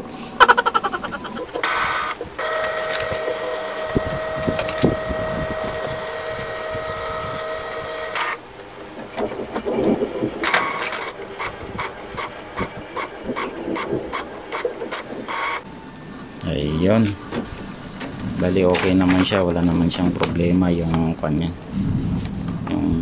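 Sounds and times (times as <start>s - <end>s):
printer motor whine: 1.4s - 16.4s
short whirs: 1.5s - 8.4s
printer mechanical clicks: 1.6s - 15.6s.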